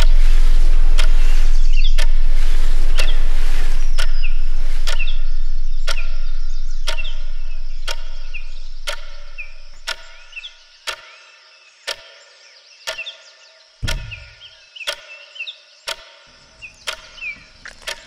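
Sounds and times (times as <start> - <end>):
sharp clock-like tick: 0.0 - 0.2, 0.9 - 18.0
deep low rumble: 0.0 - 10.5
birds chirping faintly: 0.0 - 18.0.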